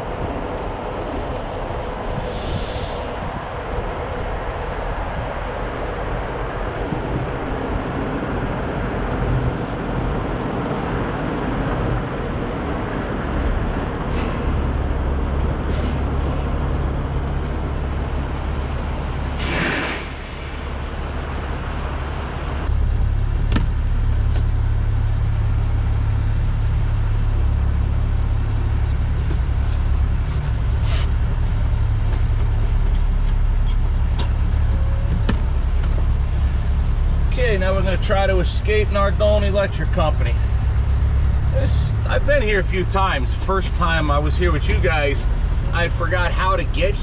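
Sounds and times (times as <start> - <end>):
truck diesel engine running: 0.0 - 47.0
air release hiss: 2.2 - 3.2, 19.4 - 20.8.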